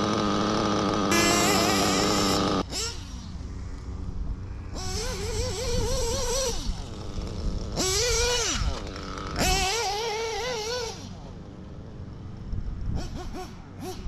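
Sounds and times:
rc car engine revving: 0:00.0 - 0:03.5, 0:04.7 - 0:11.4, 0:13.0 - 0:14.0.

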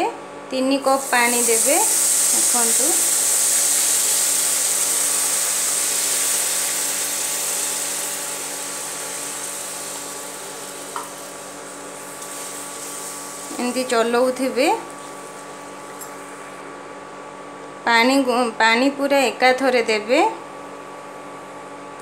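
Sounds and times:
water sizzling in hot pan: 0:00.9 - 0:16.0.

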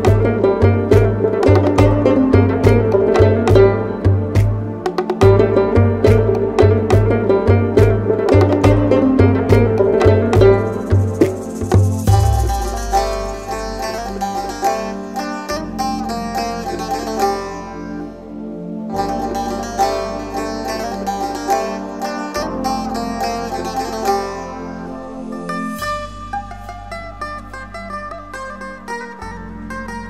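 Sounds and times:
rapid plucked-string melody: 0:00.0 - 0:30.0
sustained bass notes: 0:00.0 - 0:30.0.

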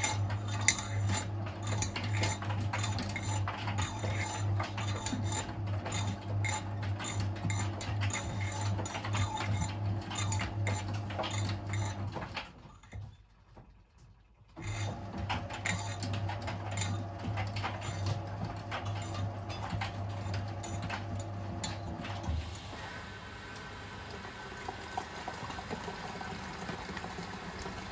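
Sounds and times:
washing machine drum tumbling: 0:14.6 - 0:27.9.

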